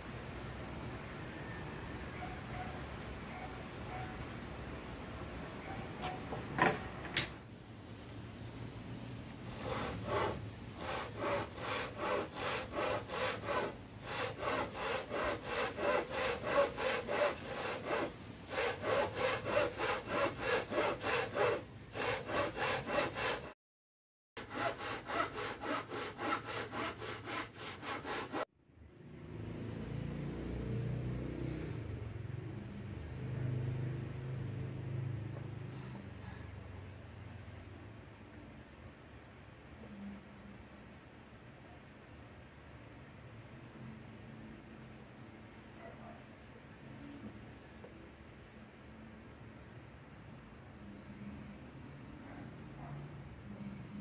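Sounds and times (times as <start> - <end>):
handsaw cutting wood: 9.5 - 23.6, 24.4 - 28.5.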